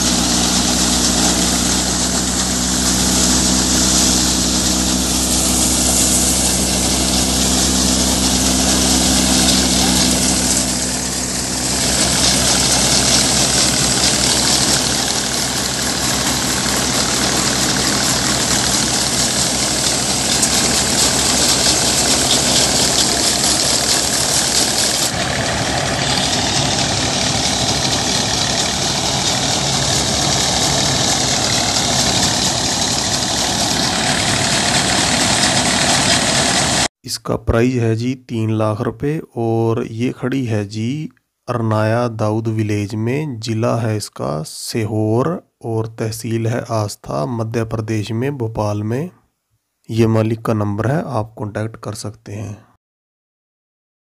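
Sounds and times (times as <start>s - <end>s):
combine harvester drone: 0.0s - 36.9s.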